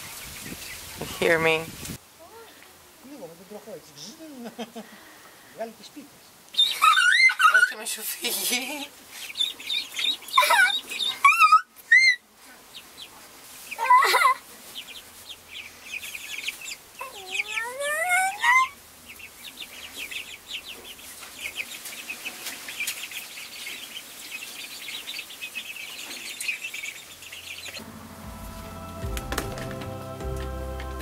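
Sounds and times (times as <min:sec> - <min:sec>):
ducklings peeping: 0:00.0 - 0:02.6, 0:05.8 - 0:31.0
music: 0:27.8 - 0:31.0.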